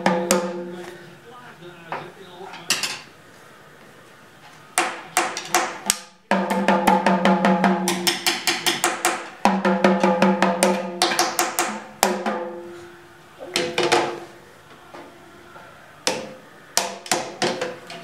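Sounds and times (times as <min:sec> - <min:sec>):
toy drum beaten with stick: 0:00.0 - 0:00.8, 0:04.8 - 0:12.8.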